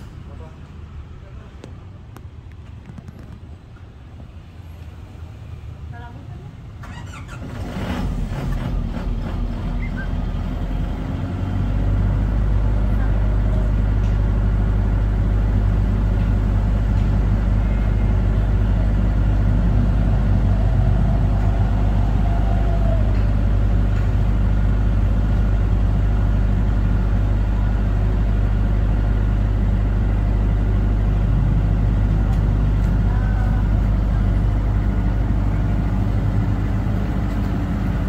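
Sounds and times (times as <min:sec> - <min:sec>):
diesel generator running: 0:07.2 - 0:38.0.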